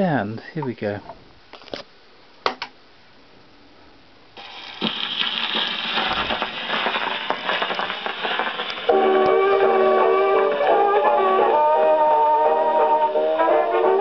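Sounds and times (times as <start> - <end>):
record surface crackle and hiss: 0.0 - 14.0.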